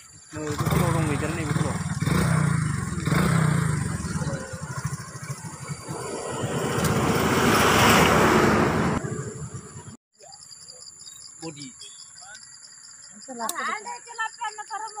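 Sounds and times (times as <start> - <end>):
vehicle passing by: 0.5 - 10.0.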